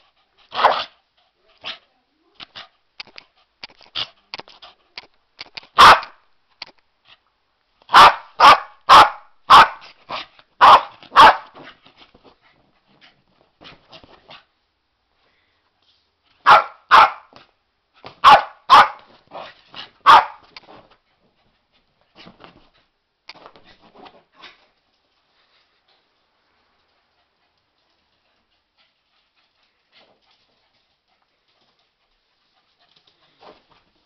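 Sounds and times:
dog barking: 0:00.6 - 0:00.9, 0:05.8 - 0:06.2, 0:07.9 - 0:11.6, 0:16.4 - 0:17.3, 0:18.2 - 0:19.1, 0:20.0 - 0:20.4
dog yapping: 0:05.8 - 0:06.1, 0:10.6 - 0:11.5, 0:16.5 - 0:17.3, 0:18.2 - 0:19.0, 0:20.0 - 0:20.4.

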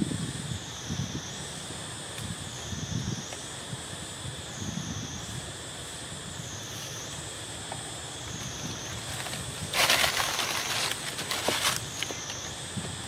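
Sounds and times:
dry leaves rustling: 0:08.3 - 0:12.6.

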